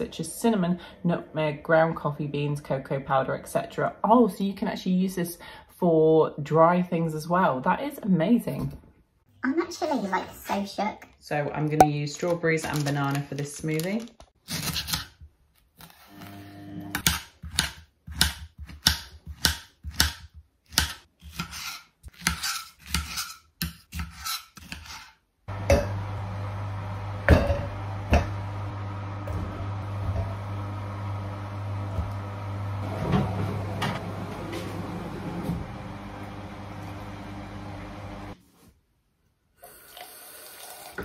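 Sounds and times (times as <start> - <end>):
appliance hum: 15.8 - 17.1, 25.5 - 38.4.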